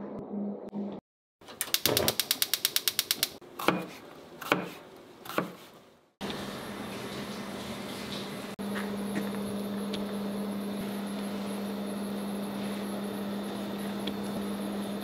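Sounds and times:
fast mechanical ticking: 1.6s - 3.4s.

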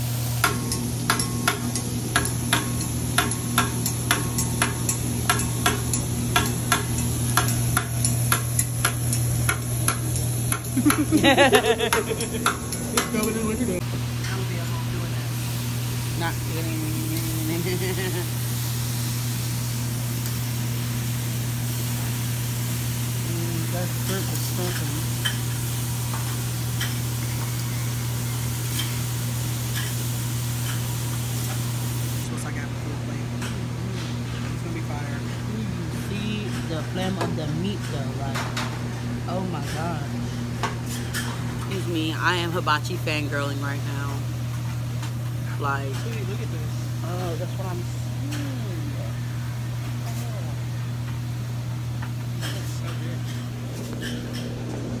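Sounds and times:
steady low hum: 0.0s - 55.0s
chicken sizzling on griddle: 13.9s - 32.2s
person's voice: 34.6s - 38.5s, 41.7s - 44.2s.

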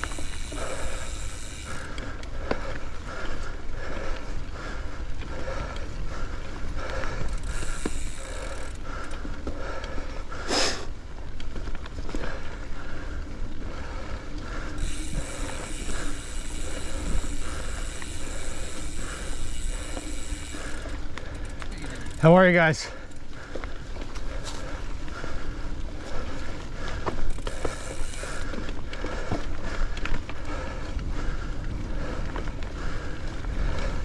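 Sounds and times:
bike rattling and clicking: 0.0s - 34.0s
rider breathing hard: 0.0s - 34.0s
wind rumble on microphone: 28.5s - 34.0s.

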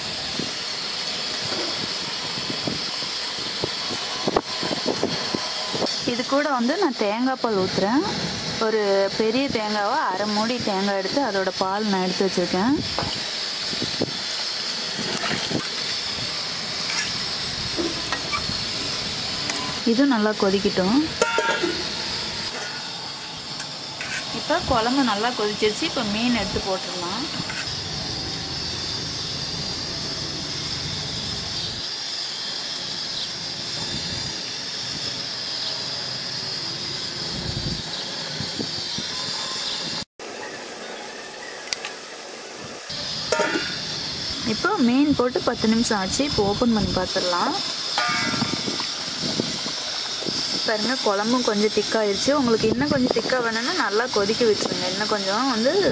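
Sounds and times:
gas stove hissing: 0.0s - 55.9s
wind rumbling on microphone: 1.4s - 6.2s, 12.6s - 14.3s, 15.0s - 19.9s, 33.8s - 35.1s, 37.2s - 40.0s, 44.1s - 47.2s, 48.2s - 50.9s, 51.8s - 53.6s.

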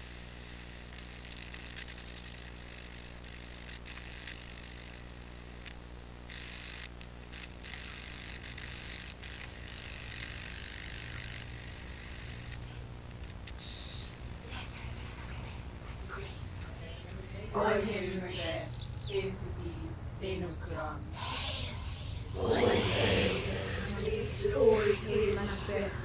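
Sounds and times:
static hiss bursts: 0.0s - 17.5s
electrical buzz: 0.0s - 26.0s.

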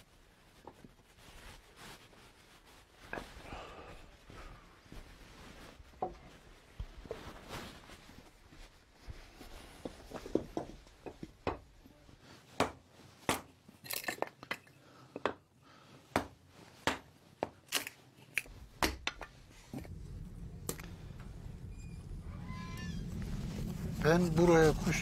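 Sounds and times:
steady low noise: 19.3s - 25.0s.

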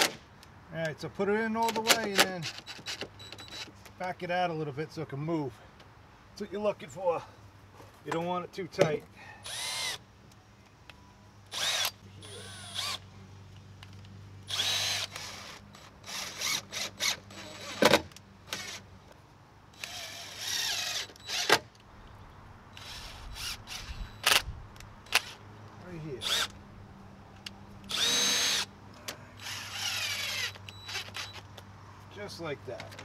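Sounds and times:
cordless drill spinning: 9.4s - 10.0s, 11.5s - 13.0s, 14.5s - 17.9s, 19.8s - 21.5s, 22.8s - 24.4s, 26.2s - 26.6s, 27.9s - 28.7s, 29.4s - 31.5s.

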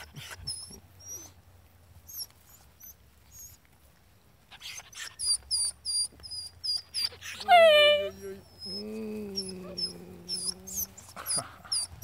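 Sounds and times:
puppy high-pitched squeaks: 0.0s - 1.4s, 2.1s - 3.6s, 4.5s - 12.0s
puppies snuffling and licking: 0.0s - 12.0s.

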